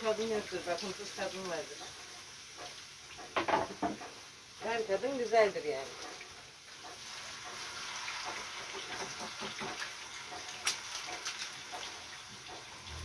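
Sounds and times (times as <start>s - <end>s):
potatoes sizzling in oil: 0.0s - 13.0s
utensil clicking against pan: 5.9s - 12.7s.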